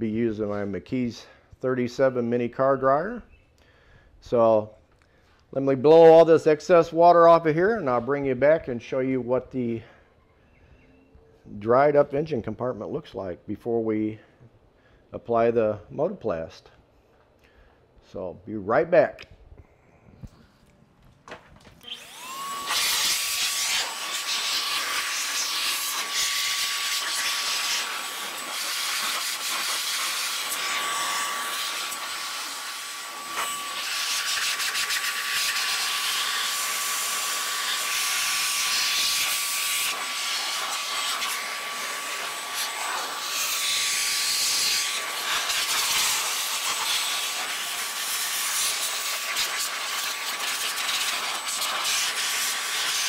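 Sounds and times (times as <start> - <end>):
air blower rushing and whining: 21.8 - 53.0.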